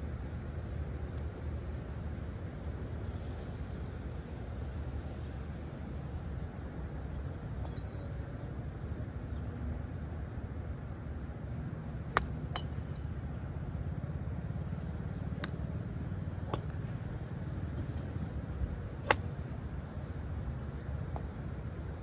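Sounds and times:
golf club striking ball: 0:12.2 - 0:13.0, 0:15.4 - 0:15.8, 0:16.5 - 0:17.0, 0:19.0 - 0:19.6.

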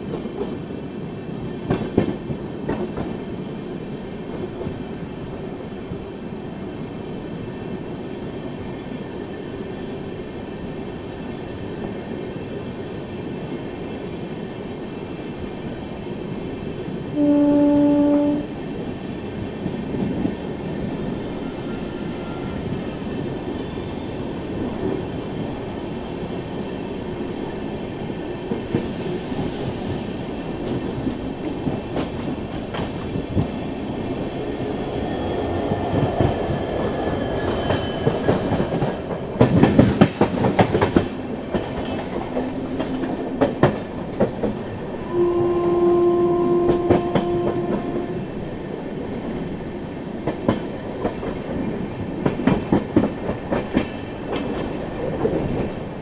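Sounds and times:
train rumble: 0:00.0 - 0:56.0
train horn: 0:17.1 - 0:18.6, 0:45.0 - 0:48.2.

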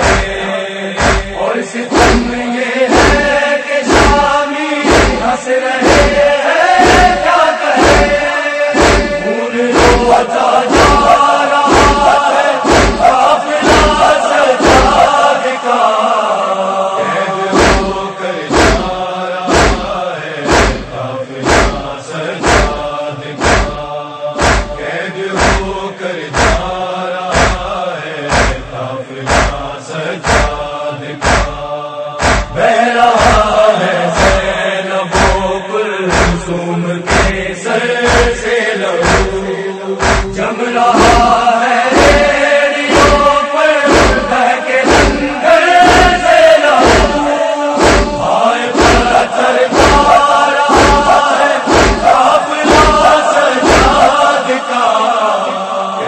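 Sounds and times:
heavy steady beat: 0:00.0 - 0:15.1, 0:17.6 - 0:24.8, 0:25.4 - 0:32.6, 0:33.2 - 0:33.6, 0:34.2 - 0:35.5, 0:36.1 - 0:37.5, 0:38.1 - 0:38.4, 0:39.0 - 0:40.4, 0:41.0 - 0:41.4, 0:42.0 - 0:54.2
male voices chanting lament: 0:00.0 - 0:56.0.

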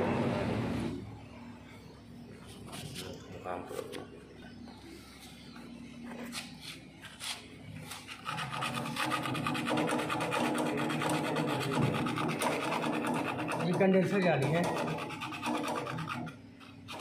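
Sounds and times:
sandpaper scraping copper pipe: 0:07.1 - 0:17.0.

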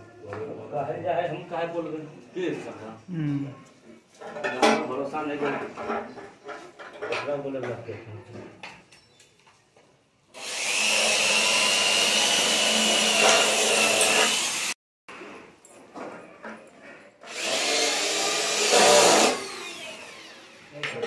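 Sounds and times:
power tool whining on aluminium: 0:17.3 - 0:20.6.

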